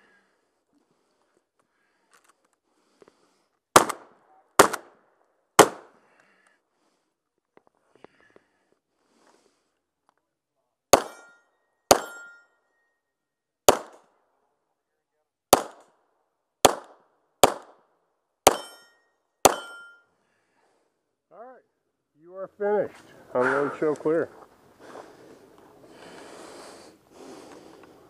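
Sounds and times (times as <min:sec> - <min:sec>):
pistol shots: 0:03.8 - 0:05.0, 0:05.6 - 0:05.9, 0:10.9 - 0:11.3, 0:11.9 - 0:12.3, 0:13.7 - 0:14.0, 0:15.5 - 0:15.9, 0:16.6 - 0:17.8, 0:18.4 - 0:18.8, 0:19.4 - 0:19.9.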